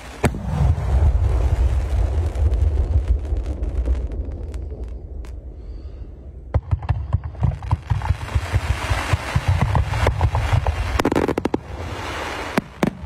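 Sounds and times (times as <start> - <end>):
firework crackles: 0.0 - 5.7, 6.6 - 13.0
firework launch thumps and pops: 6.5 - 11.8, 12.5 - 13.0
firework shell bursts rumbling: 6.5 - 11.8
firework hiss: 7.9 - 13.0.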